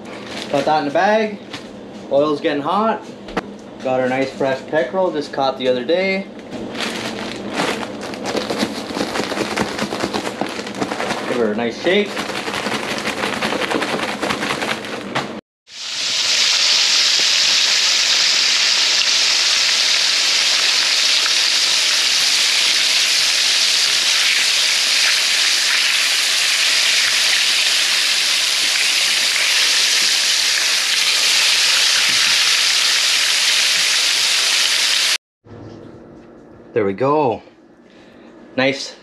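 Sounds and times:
fish frying in hot oil: 15.7 - 35.2.

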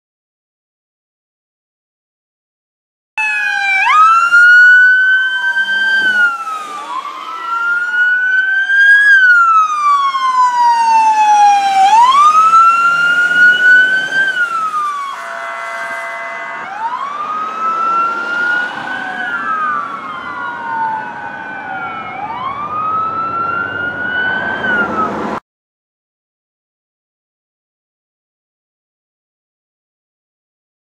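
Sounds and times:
emergency sirens wailing: 3.2 - 25.4
air horn blast: 12.9 - 18.2.

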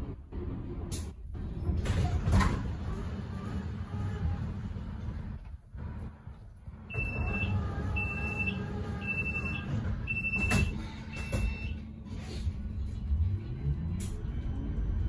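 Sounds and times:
bus door warning beeps: 6.9 - 11.8.

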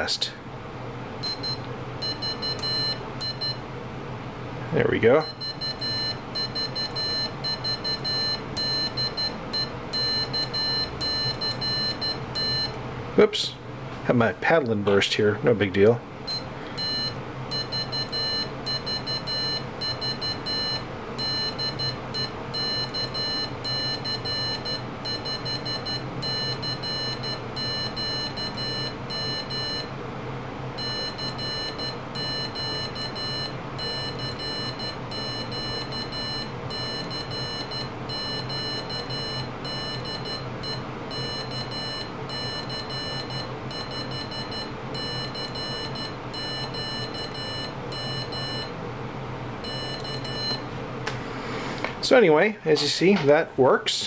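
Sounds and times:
high-pitched morse code beeps: 5.2 - 12.7, 16.3 - 29.9, 30.8 - 48.7, 49.6 - 50.6.

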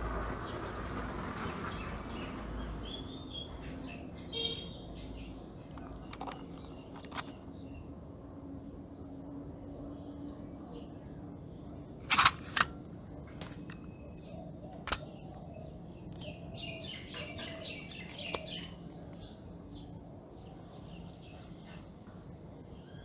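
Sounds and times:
birds chirping: 0.4 - 23.0
plastic case clicking open: 5.8 - 7.4, 12.1 - 12.8, 14.8 - 15.1, 18.1 - 18.7.

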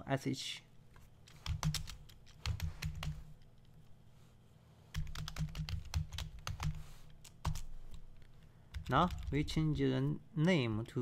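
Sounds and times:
keyboard typing: 1.2 - 3.5, 4.9 - 9.8.

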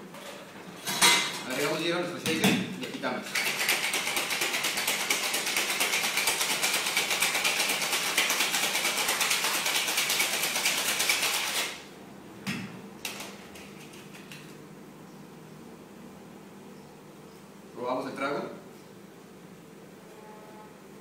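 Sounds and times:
ice rattling in cocktail shaker: 3.2 - 11.8.

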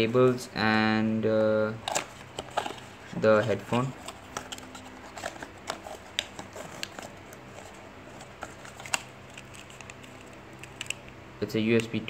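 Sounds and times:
paper rustling: 1.8 - 11.0.

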